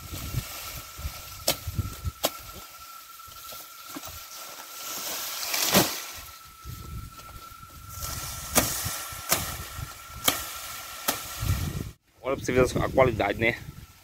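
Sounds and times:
leaves and stalks rustling: 0:00.0 - 0:12.0
machete chopping stalks: 0:01.4 - 0:02.8, 0:04.9 - 0:06.2, 0:08.0 - 0:11.7.

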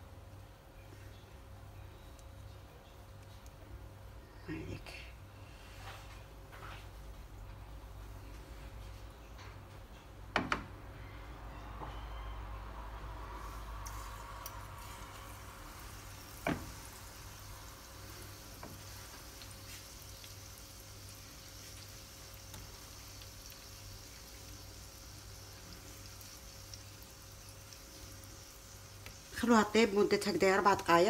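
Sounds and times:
food sizzling in oil: 0:13.4 - 0:31.0.

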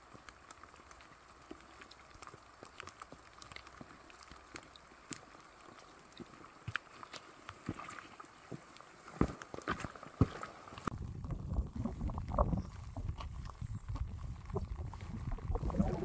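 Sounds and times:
raindrops ticking: 0:00.0 - 0:07.7
rain hiss: 0:00.0 - 0:11.0.

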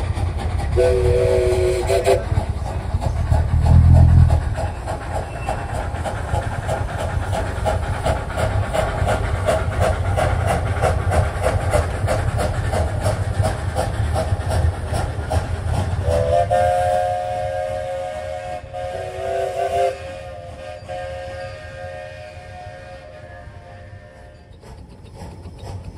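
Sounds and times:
steam locomotive chuffing: 0:00.0 - 0:25.9
steam whistle chord: 0:00.8 - 0:02.2, 0:16.2 - 0:24.4.

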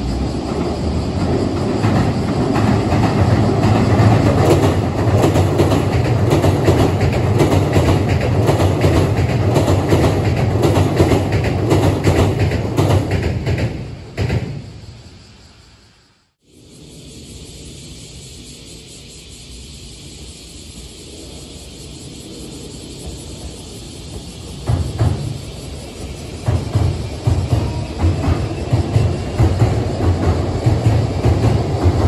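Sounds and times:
wheels clattering over rail joints: 0:00.0 - 0:14.6, 0:23.2 - 0:32.0
train rumbling over steel bridge: 0:00.0 - 0:32.0.

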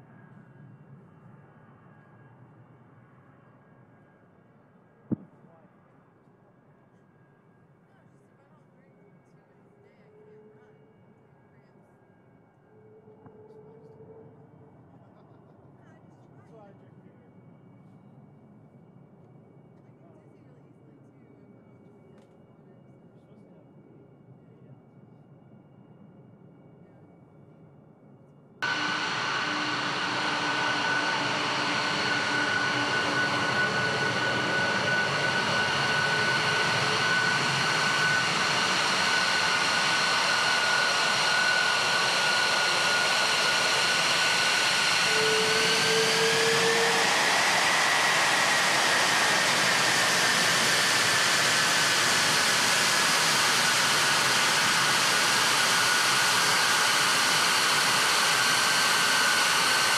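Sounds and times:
jet engines running: 0:28.6 - 0:59.9.

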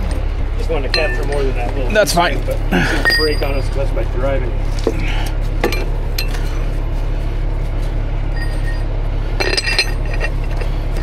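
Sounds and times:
low engine drone: 0:00.0 - 0:11.0
shackle and chain clinking: 0:08.3 - 0:11.0.

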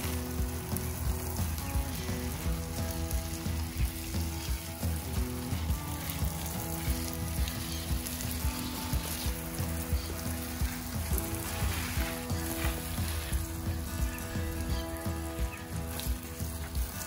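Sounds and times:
water spray hissing on plants: 0:00.0 - 0:17.0.

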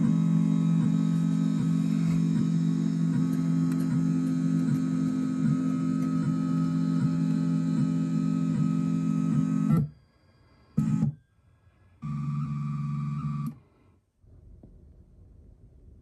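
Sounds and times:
motor drive whining: 0:00.0 - 0:10.0, 0:12.0 - 0:13.6.

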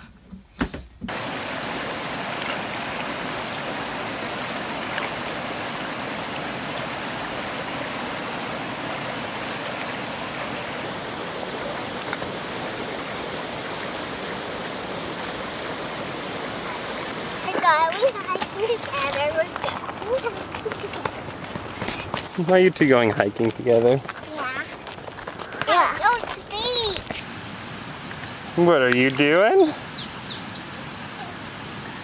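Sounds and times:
creek rushing over rocks: 0:01.1 - 0:32.0.

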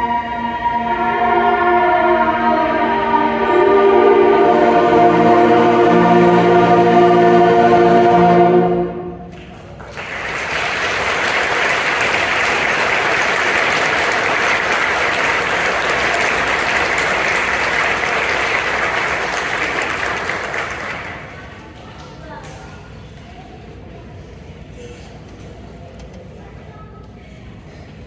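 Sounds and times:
held musical chord: 0:00.0 - 0:09.3
audience clapping: 0:09.3 - 0:22.2.

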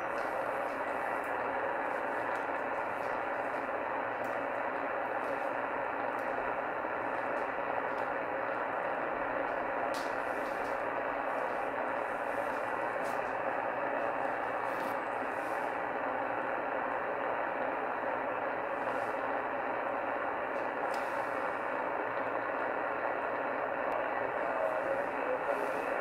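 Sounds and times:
radio static hiss: 0:00.0 - 0:26.0.

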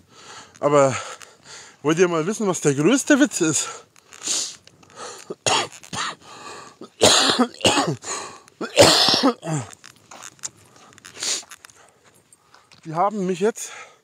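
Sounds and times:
man coughing harshly: 0:05.4 - 0:06.2, 0:06.8 - 0:08.0, 0:08.6 - 0:09.7.

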